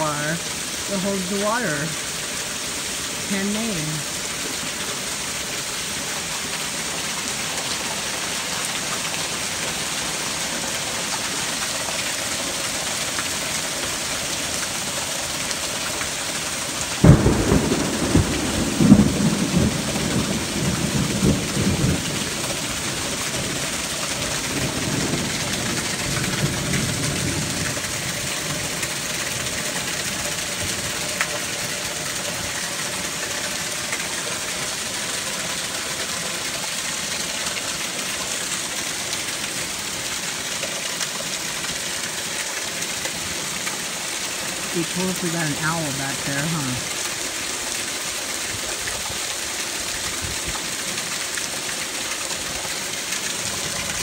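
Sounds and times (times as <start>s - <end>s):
heavy rain pouring: 0.0s - 54.0s
thunder crack and rumble: 17.0s - 22.6s.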